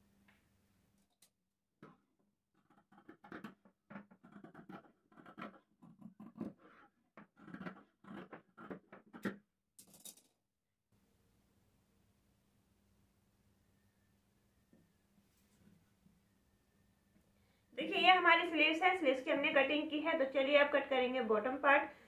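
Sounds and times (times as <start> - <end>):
scissors snipping cloth: 2.6 - 6.6, 7.2 - 9.2.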